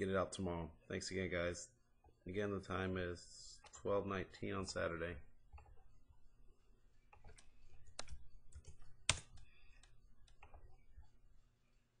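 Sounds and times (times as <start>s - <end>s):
keyboard keys clicking: 7.1s - 10.8s.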